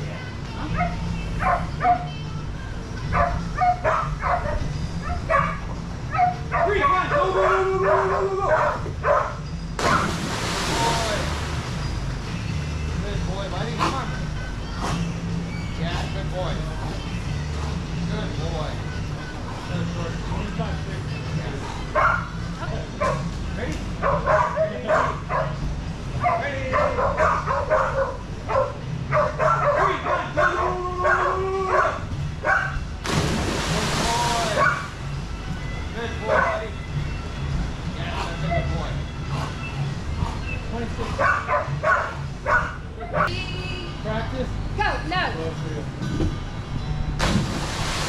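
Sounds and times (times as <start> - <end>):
dog barking and yipping: 3.2 - 10.1, 24.0 - 25.6, 26.2 - 32.8, 34.6 - 34.9, 36.3 - 36.6, 41.2 - 43.3
big splash into water: 9.8 - 12.0, 33.0 - 34.9, 47.2 - 48.0.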